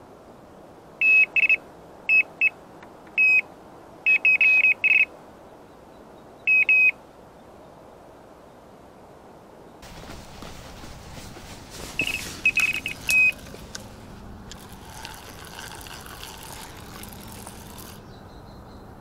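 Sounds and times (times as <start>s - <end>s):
bite alarm beeping: 12.0s - 13.5s.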